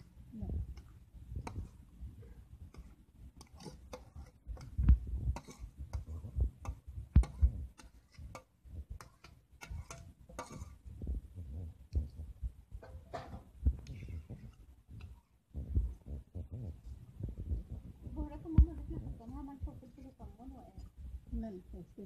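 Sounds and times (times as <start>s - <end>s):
metal spoon scraping a pot: 0.7s - 11.9s, 12.8s - 15.3s.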